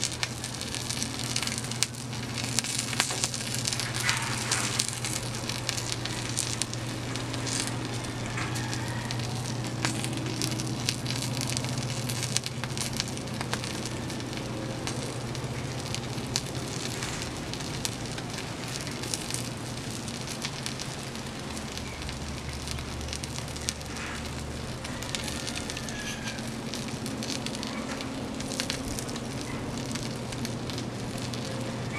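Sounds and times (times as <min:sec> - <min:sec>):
low hum: 0:00.0 - 0:25.2
fire crackling and popping: 0:00.0 - 0:31.9.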